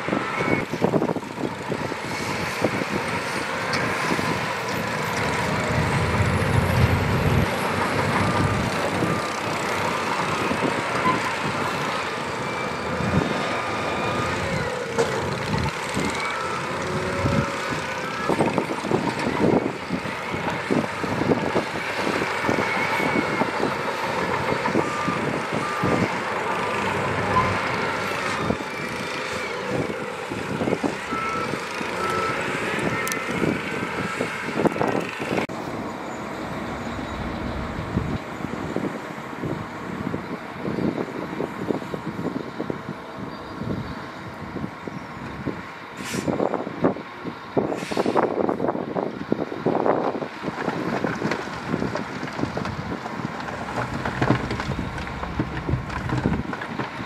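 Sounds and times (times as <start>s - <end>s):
diesel engines under load: 0.0s - 57.0s
reversing alarm beeping: 30.6s - 33.5s.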